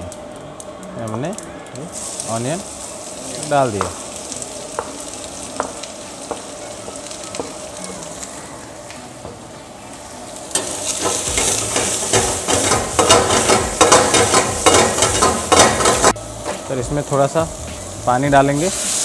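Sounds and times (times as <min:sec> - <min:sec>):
onions sizzling in oil: 0:00.0 - 0:19.0
ladle scraping on pan: 0:10.5 - 0:16.6.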